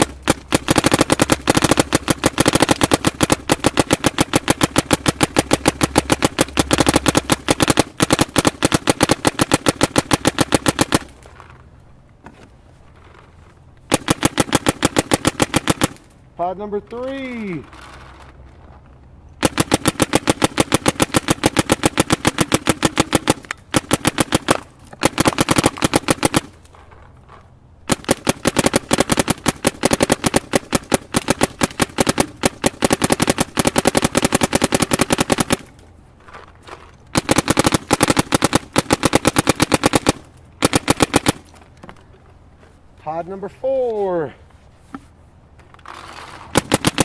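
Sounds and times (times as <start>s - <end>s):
paintball marker firing rapid shots: 0.0s - 11.2s, 13.9s - 16.1s, 19.4s - 26.6s, 27.8s - 35.7s, 37.1s - 41.6s, 46.1s - 47.0s.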